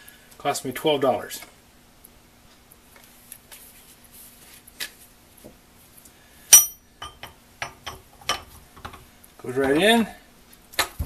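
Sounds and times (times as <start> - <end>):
chisel clinking against metal: 6.5 - 8.5.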